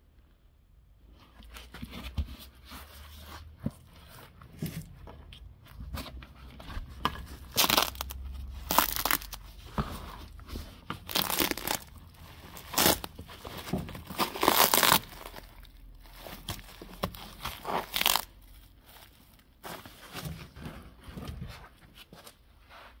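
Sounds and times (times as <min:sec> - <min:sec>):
bitumen sheet tearing and crunching: 0:07.4 - 0:09.6, 0:11.0 - 0:13.2, 0:14.0 - 0:18.5.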